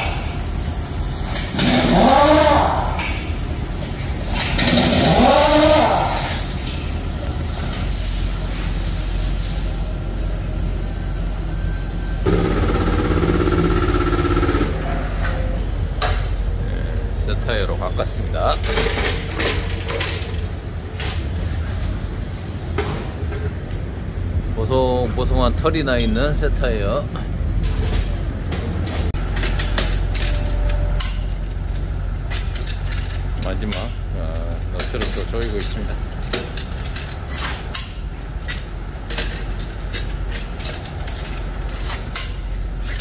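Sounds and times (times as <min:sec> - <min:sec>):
low machine hum: 0:00.0 - 0:43.0
air-powered tool running: 0:01.2 - 0:03.2.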